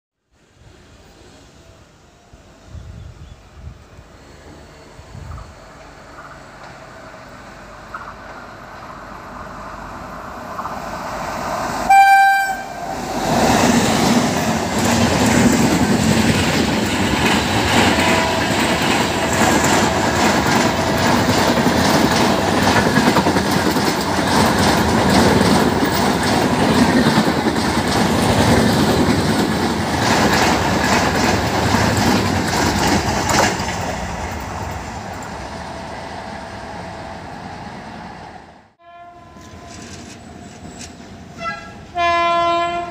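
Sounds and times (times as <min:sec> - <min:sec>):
train horn blast: 0:11.9 - 0:13.0, 0:17.8 - 0:19.1, 0:38.8 - 0:40.0, 0:41.4 - 0:42.9
train wheels clattering: 0:13.2 - 0:35.4.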